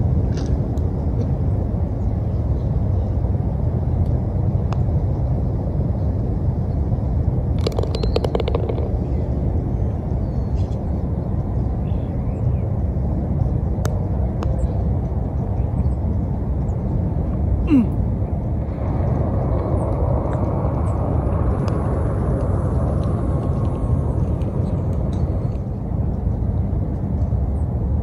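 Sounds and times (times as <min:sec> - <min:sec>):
low outdoor rumble: 0:00.0 - 0:28.0
putter striking golf ball: 0:07.6 - 0:09.2.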